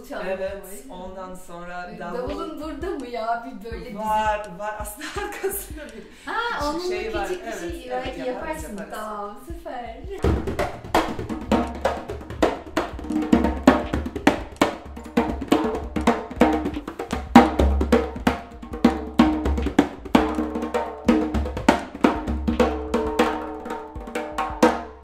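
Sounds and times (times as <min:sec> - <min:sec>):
hand drum played with hands: 0:06.6 - 0:25.0.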